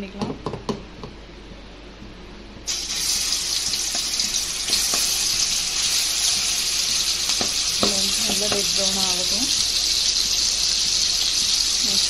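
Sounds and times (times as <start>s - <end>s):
paste sizzling in hot oil: 2.7s - 12.0s.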